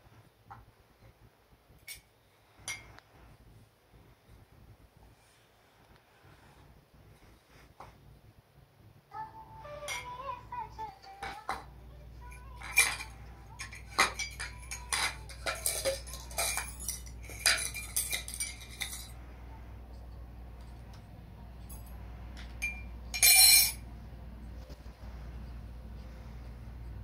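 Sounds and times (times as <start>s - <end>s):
metal spoon clinking on steel: 12.3s - 19.2s, 21.6s - 23.8s
clatter: 12.6s - 19.2s.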